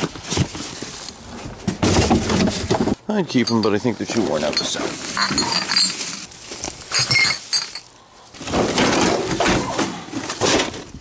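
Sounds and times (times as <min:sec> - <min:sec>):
rummaging through a bin: 0:00.0 - 0:10.9
glass bottles clinking: 0:03.4 - 0:06.3, 0:06.9 - 0:07.9.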